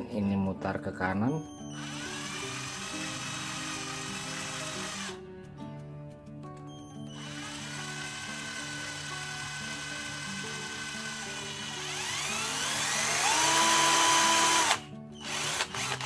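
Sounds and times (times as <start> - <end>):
cordless drill motor whining: 1.5 - 5.2, 7.0 - 16.0.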